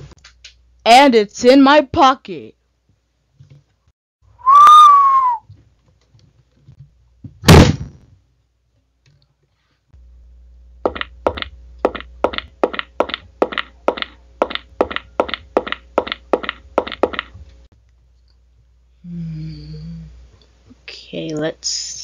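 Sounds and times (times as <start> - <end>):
faint low hum: 8.1 - 22.0
sharp taps: 10.8 - 17.3.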